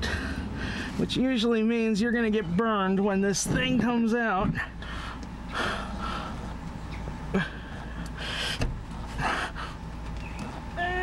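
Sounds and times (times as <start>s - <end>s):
man breathing sharply: 0.0s - 1.0s, 4.8s - 6.6s, 7.4s - 9.9s
low steady hum: 0.0s - 11.0s.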